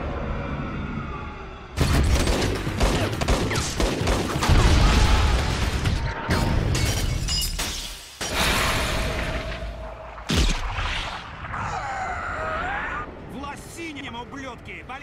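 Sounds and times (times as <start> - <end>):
glass bottles shattering: 6.8 - 8.1.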